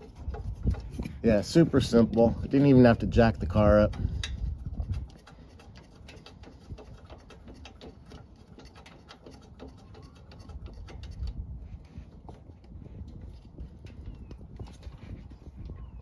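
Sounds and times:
metal bolts clicking: 0:03.5 - 0:11.4.

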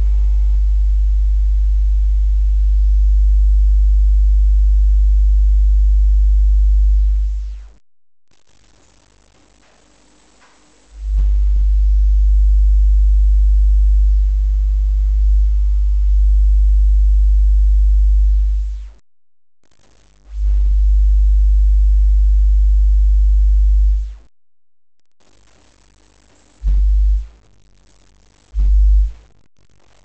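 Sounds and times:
deep bass tone from subwoofers: 0:00.0 - 0:07.8, 0:11.0 - 0:19.0, 0:20.3 - 0:24.3, 0:26.6 - 0:27.3, 0:28.5 - 0:29.2.

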